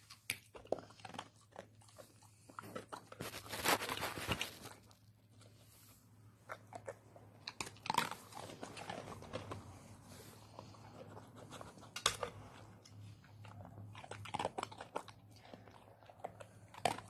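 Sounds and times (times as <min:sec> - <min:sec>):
dog crunching biscuits: 0:00.0 - 0:05.6, 0:06.4 - 0:17.0.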